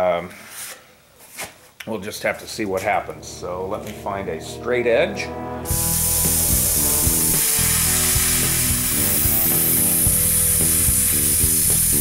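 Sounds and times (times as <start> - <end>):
background music with bass line: 2.4 - 12.0
plasma cutter hissing: 5.7 - 12.0.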